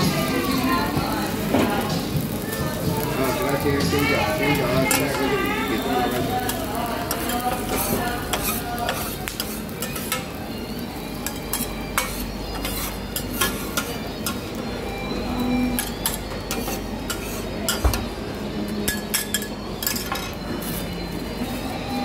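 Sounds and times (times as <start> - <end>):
food sizzling: 0.0 - 22.0
steel spatulas scraping on griddle: 4.2 - 10.4, 11.2 - 14.6, 15.3 - 17.9, 18.8 - 22.0.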